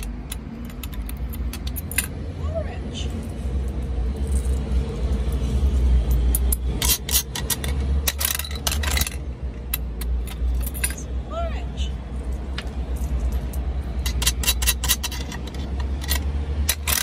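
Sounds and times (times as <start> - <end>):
coin mechanism clicking and rattling: 0.0 - 2.2, 6.0 - 11.1, 12.4 - 17.0.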